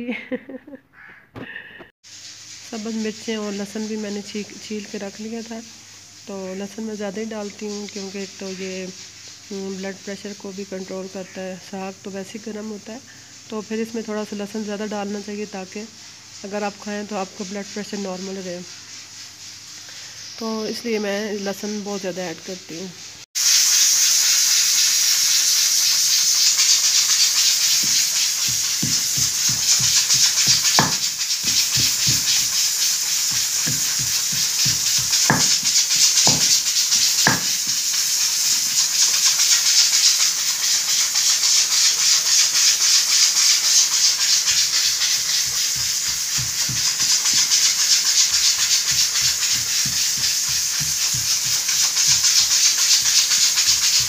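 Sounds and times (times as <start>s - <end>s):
steady hiss: 1.5s - 54.0s
pestle pounding in stone mortar: 26.6s - 37.9s, 43.6s - 54.0s.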